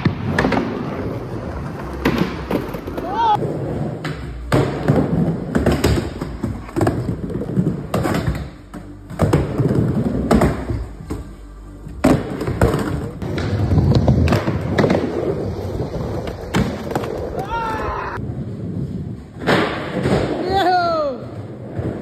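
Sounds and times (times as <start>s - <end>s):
skateboards clacking and landing: 0.0s - 11.3s, 12.0s - 18.2s
skateboard wheels rolling: 0.0s - 11.4s, 12.0s - 22.0s
background music: 0.0s - 22.0s.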